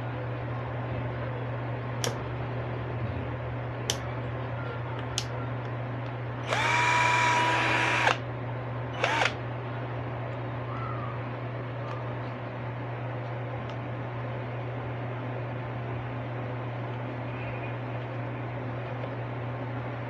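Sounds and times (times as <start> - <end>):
drill motor whining: 6.4 - 8.2, 9.0 - 9.4.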